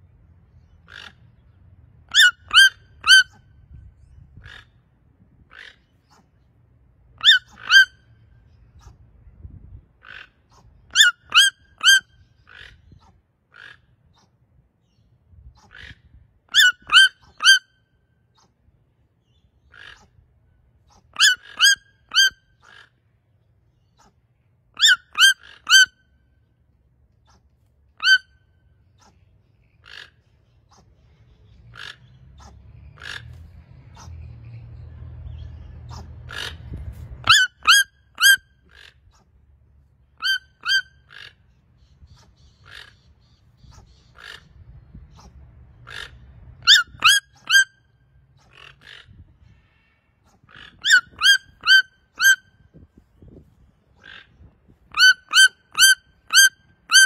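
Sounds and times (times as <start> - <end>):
faint toucan calls: 0.6 - 1.5, 2.1 - 3.7, 4.4 - 6.5, 7.2 - 9.1, 10.0 - 18.7, 19.6 - 23.1, 23.8 - 26.2, 27.1 - 34.3, 35.9 - 39.4, 40.1 - 52.6, 54.0 - 57.0
toucan yelping calls: 0.8 - 1.2, 2.1 - 3.7, 4.4 - 4.8, 5.5 - 6.2, 7.2 - 8.2, 10.0 - 14.2, 15.7 - 17.8, 19.6 - 20.2, 20.9 - 23.0, 24.8 - 26.1, 28.0 - 28.5, 29.6 - 30.3, 31.6 - 33.4, 37.2 - 39.1, 40.1 - 49.2, 50.4 - 52.8, 54.0 - 57.0.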